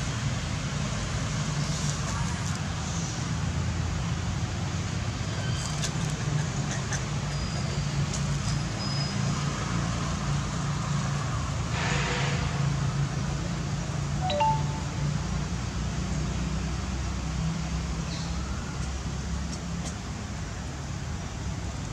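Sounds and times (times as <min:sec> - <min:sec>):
high chirps: 0:14.2 - 0:15.3.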